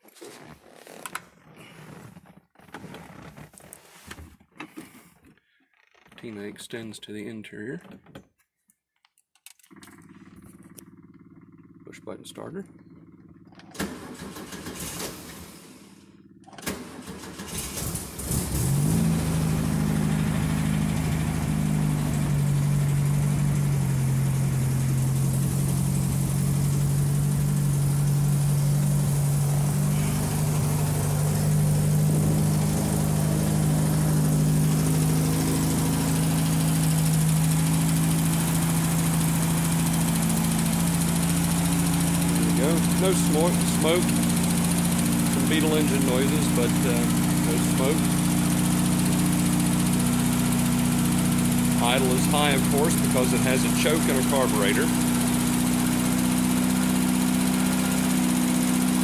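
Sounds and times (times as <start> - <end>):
engine starter cranking: 9.5 - 11.4, 13.2 - 23.5, 24.9 - 58.1
engine idling: 9.7 - 59.0.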